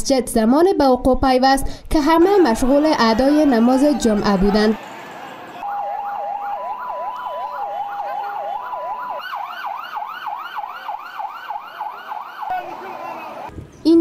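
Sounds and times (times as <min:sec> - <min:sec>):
rapid siren yelp: 0:02.2 - 0:13.5
rising and falling siren sweep: 0:02.4 - 0:13.5
two-tone siren: 0:02.4 - 0:13.5.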